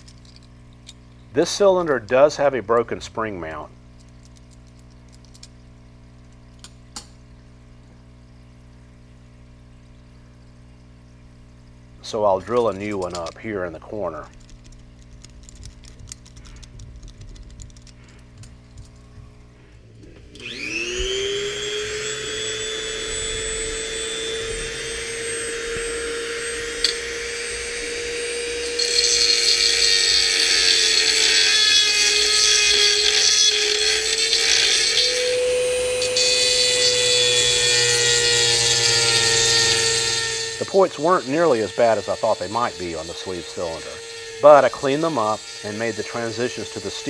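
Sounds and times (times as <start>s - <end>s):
rotary tool cutting metal: 12.4s - 14.2s, 20.4s - 47.0s
rotary tool whining: 12.4s - 47.0s
handling clicks: 14.3s - 19.1s.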